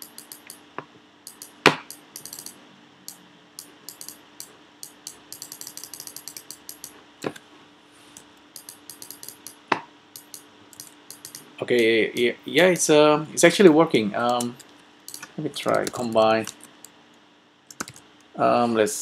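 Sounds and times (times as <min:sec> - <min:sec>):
mouse and keyboard clicking: 0:00.0 - 0:00.6, 0:01.3 - 0:07.4, 0:08.6 - 0:09.6, 0:10.2 - 0:12.3, 0:14.2 - 0:17.0, 0:17.7 - 0:18.0.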